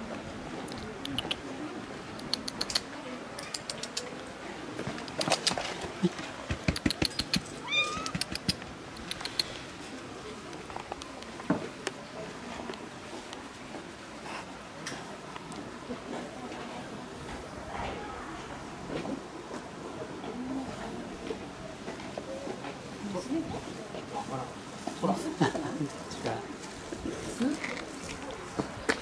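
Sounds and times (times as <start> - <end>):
sharp clicks and taps: 2.2 - 4.1, 6.5 - 9.5
cat meowing: 7.6 - 8.3.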